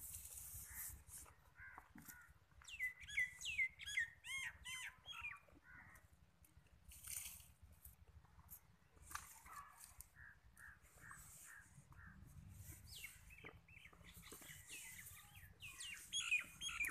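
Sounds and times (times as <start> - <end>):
rustling of dry leaves: 0.0 - 2.7, 5.7 - 16.9
bird calling: 0.6 - 6.0, 9.4 - 16.9.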